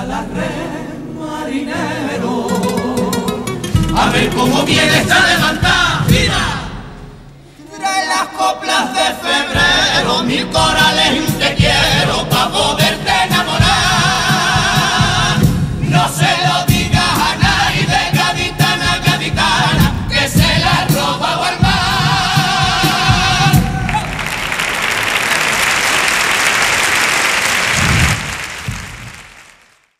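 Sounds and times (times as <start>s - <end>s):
male chorus singing in harmony: 0.0s - 24.2s
strummed guitars: 1.8s - 7.6s, 9.5s - 23.9s
audience applauding: 23.5s - 29.9s.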